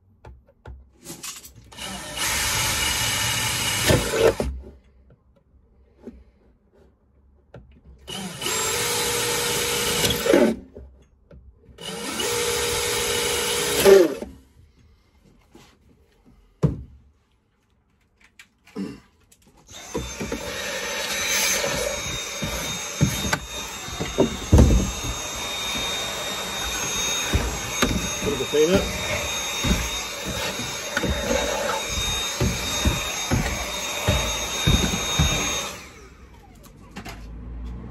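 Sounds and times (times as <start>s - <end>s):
cordless drill boring wood: 1.7s - 4.6s, 8.0s - 10.6s, 11.8s - 14.3s, 19.7s - 36.7s
vacuum cleaner running: 19.7s - 36.6s
knocks: 21.7s - 35.7s.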